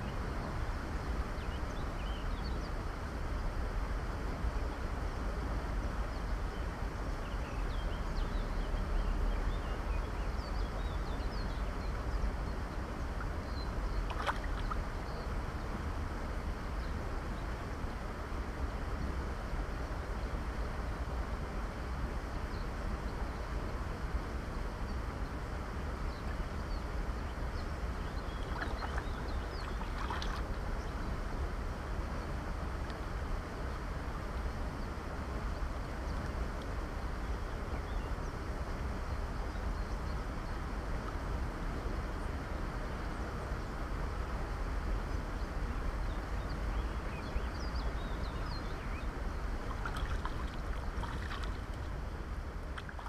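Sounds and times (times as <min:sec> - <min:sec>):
wind rumble on microphone: 0:00.0 - 0:53.0
faint bird chirps: 0:26.0 - 0:31.0
river water rushing: 0:28.4 - 0:31.2, 0:49.0 - 0:53.0.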